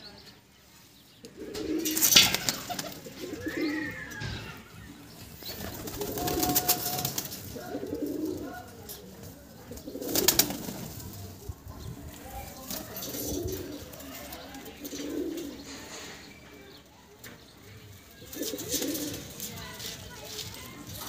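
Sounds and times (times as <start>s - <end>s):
pigeons cooing: 1.2s - 11.4s, 12.6s - 16.4s, 18.1s - 19.6s.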